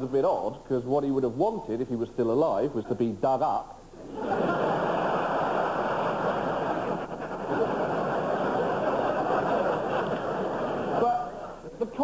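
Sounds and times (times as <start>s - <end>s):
audience laughing: 4.0s - 11.6s
audience applauding: 4.6s - 11.1s.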